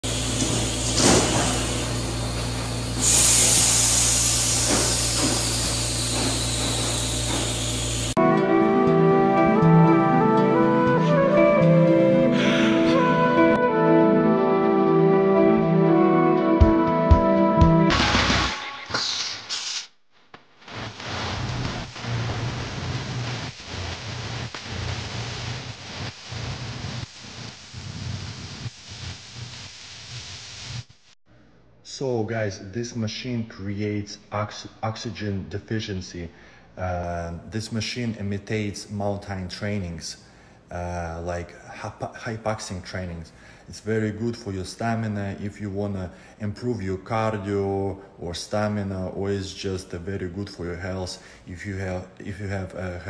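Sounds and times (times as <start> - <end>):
air hissing: 0.0 - 8.2, 18.9 - 20.0
compressor hum: 0.0 - 10.8.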